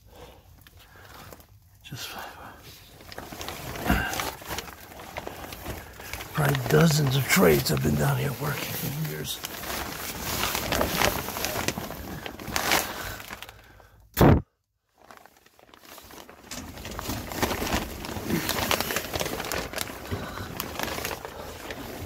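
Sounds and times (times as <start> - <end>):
plastic sheeting crinkling: 0.1 - 13.9, 14.9 - 22.0.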